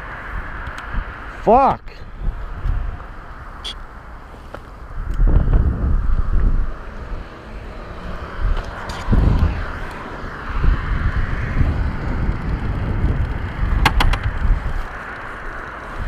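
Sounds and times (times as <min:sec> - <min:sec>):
wind buffeting microphone: 0:00.0 - 0:01.4, 0:02.0 - 0:03.6, 0:04.7 - 0:16.0
motorcycle rolling rumble: 0:02.3 - 0:16.0
sharp clicks: 0:13.8 - 0:14.4.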